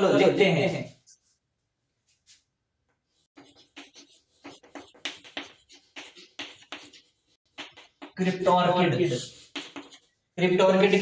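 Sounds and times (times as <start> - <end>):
chalk writing on chalkboard: 3.3 - 8.4, 9.1 - 10.2.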